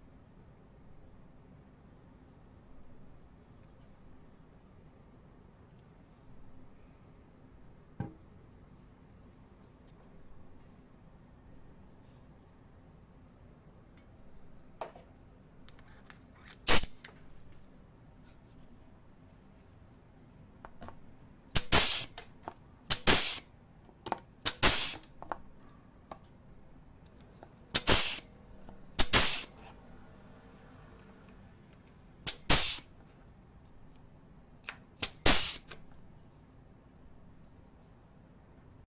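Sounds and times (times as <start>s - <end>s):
air punch click: 21.6s - 22.2s, 22.9s - 23.5s, 24.4s - 25.1s, 27.8s - 28.3s, 29.0s - 29.5s, 32.3s - 32.9s, 35.0s - 35.8s
exhaust air hiss: 21.6s - 22.2s, 22.9s - 23.5s, 24.4s - 25.1s, 27.7s - 28.3s, 29.0s - 29.6s, 32.2s - 32.9s, 35.0s - 35.8s.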